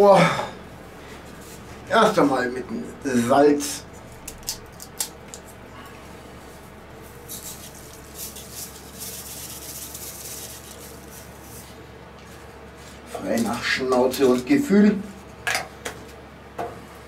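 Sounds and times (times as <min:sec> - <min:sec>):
salt sprinkling hiss: 0:06.5 - 0:11.8.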